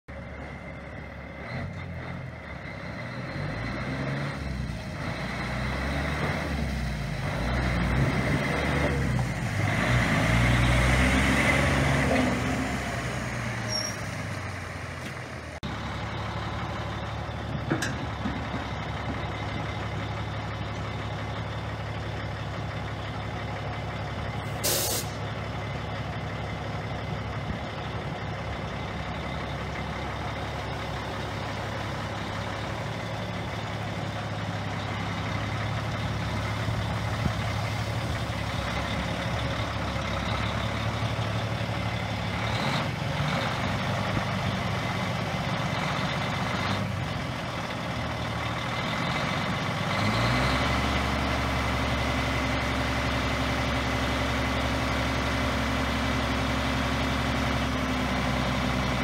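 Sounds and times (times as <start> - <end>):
diesel engine idling: 0.1 - 59.0
diesel truck driving past: 0.1 - 59.0
sharp air hiss: 24.6 - 25.2.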